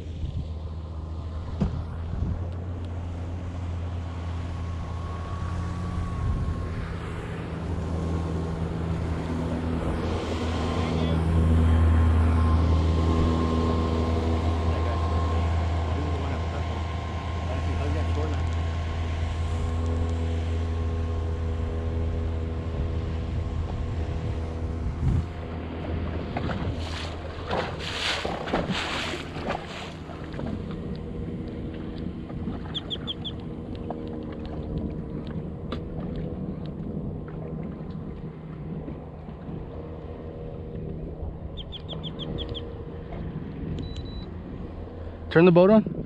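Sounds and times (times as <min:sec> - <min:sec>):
boat motor humming: 0:00.0 - 0:46.0
quick high beeps: 0:43.8 - 0:44.3.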